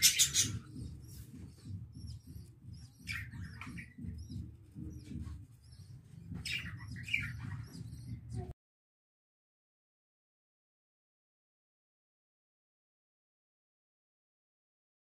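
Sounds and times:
budgerigars chirping: 0.0 - 8.5
harsh bird calls: 0.0 - 8.5.

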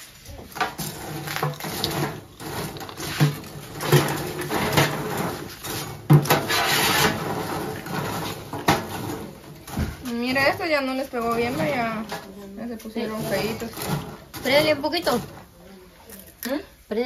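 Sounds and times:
oil sizzling: 0.0 - 9.6.

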